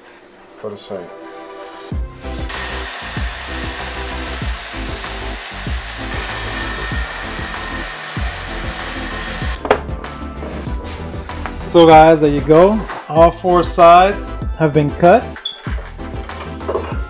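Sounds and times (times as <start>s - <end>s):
track saw cutting wood: 2.5s - 9.6s.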